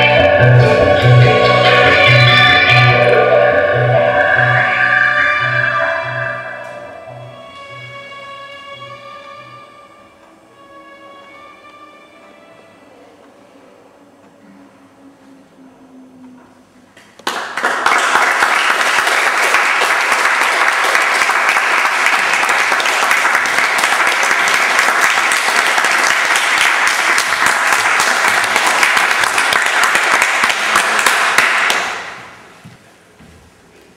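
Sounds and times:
audience applauding: 17.2 - 32.4.

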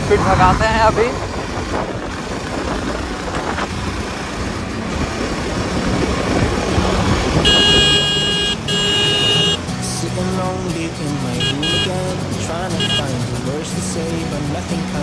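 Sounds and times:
wind rush on microphone: 0.0 - 8.1
motorcycle engine at speed: 0.0 - 9.7.

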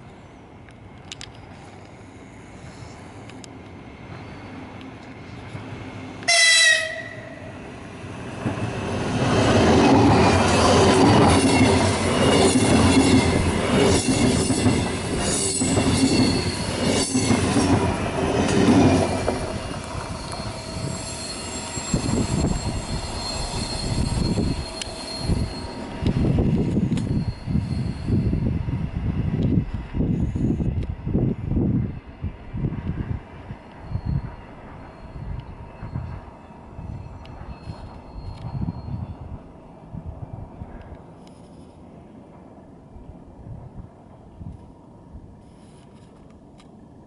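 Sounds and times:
train horn blast: 6.2 - 7.6
train wheels rolling: 8.0 - 31.0, 32.7 - 39.2.

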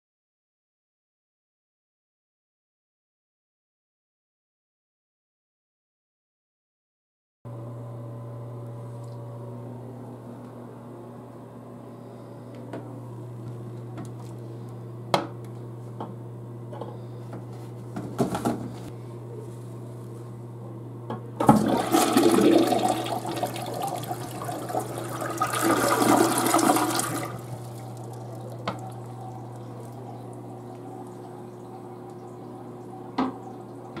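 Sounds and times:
steady low hum: 7.5 - 34.0
toilet flushing: 21.4 - 34.0.

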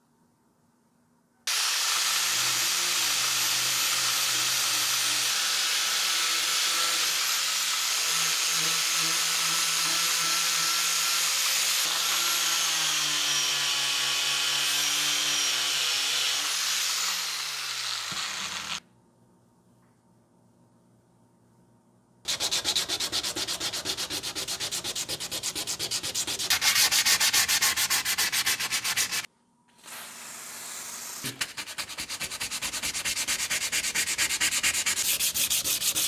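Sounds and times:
angle grinder on metal: 1.5 - 18.8.

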